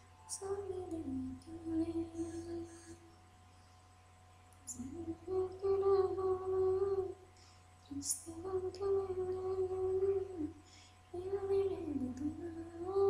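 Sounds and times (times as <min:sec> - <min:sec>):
low electrical hum: 0:00.0 - 0:13.0
woman humming: 0:00.4 - 0:03.1, 0:04.7 - 0:07.2.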